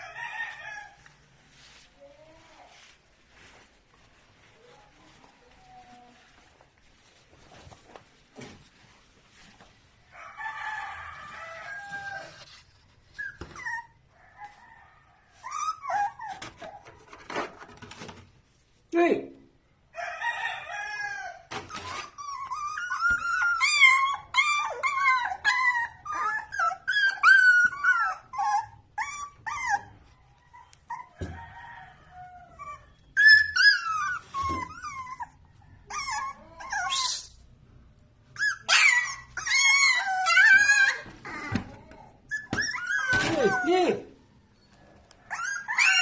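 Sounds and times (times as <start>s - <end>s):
puppies whining and yipping: 11.6s - 14.6s, 15.3s - 17.0s, 20.9s - 37.3s, 38.3s - 44.0s, 44.6s - 46.0s.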